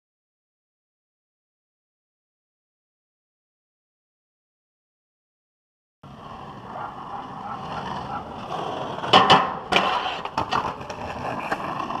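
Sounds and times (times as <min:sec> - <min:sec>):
skateboard wheels rolling on asphalt: 0:06.0 - 0:12.0
skateboard clacking on metal rail: 0:06.9 - 0:12.0.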